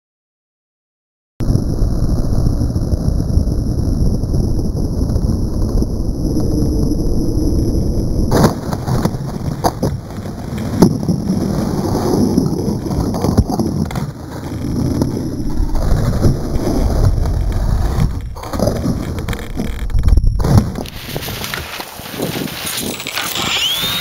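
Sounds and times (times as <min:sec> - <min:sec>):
wind rumble on microphone: 0:01.4 - 0:24.0
knocks and scrapes on branches: 0:18.0 - 0:24.0.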